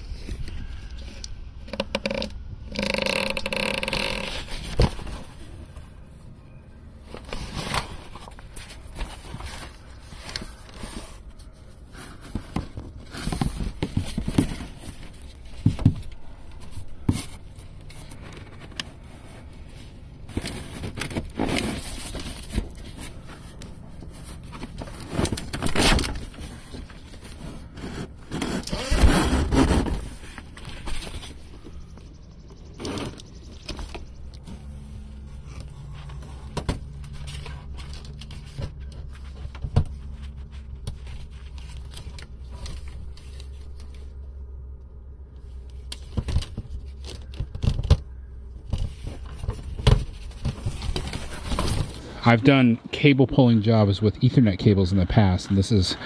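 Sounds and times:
hands scraping and rustling tape: 0:00.0 - 0:05.8, 0:07.1 - 0:31.9, 0:32.6 - 0:44.2.

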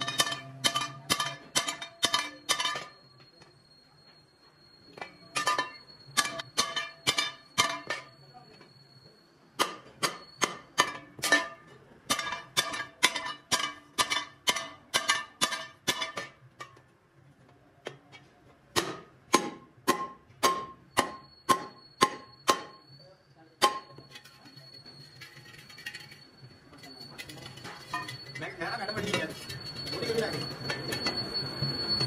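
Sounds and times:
hammer striking steel rim: 0:00.0 - 0:03.0, 0:05.0 - 0:08.2, 0:09.6 - 0:16.8, 0:18.7 - 0:23.0, 0:23.6 - 0:24.4.

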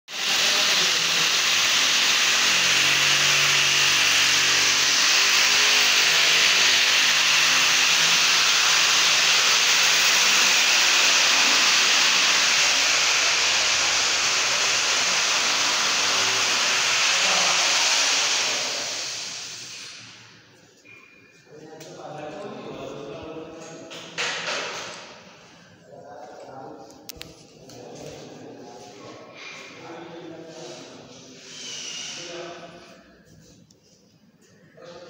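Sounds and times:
loud steady hiss: 0:00.1 - 0:20.3.

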